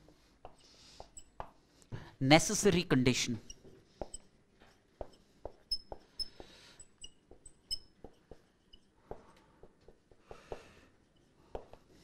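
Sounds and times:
marker squeaking on whiteboard: 3.4s - 4.3s, 5.0s - 9.0s.

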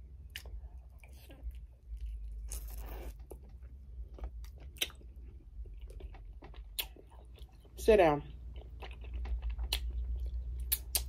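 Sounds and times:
wet mouth smacking and clicking: 10.7s - 11.0s.

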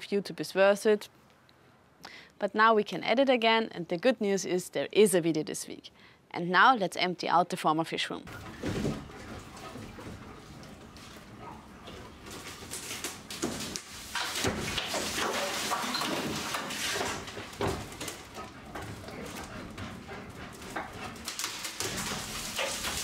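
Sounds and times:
wood cracking and scraping: 8.3s - 23.0s.

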